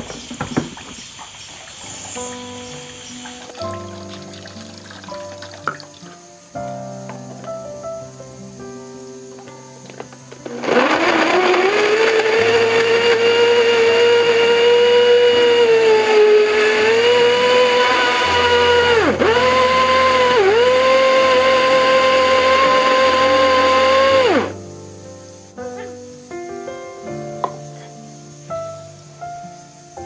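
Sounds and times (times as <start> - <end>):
blender motor whining: 10.4 - 24.6.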